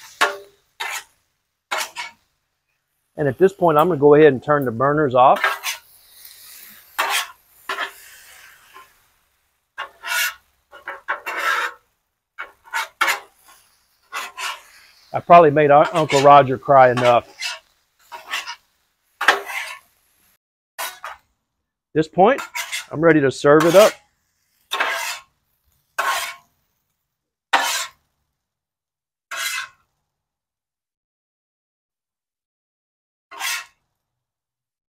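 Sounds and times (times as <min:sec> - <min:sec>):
metal spatula scraping griddle: 0:00.0 - 0:21.3, 0:22.0 - 0:26.8, 0:27.5 - 0:28.1, 0:29.3 - 0:29.9, 0:33.3 - 0:33.8.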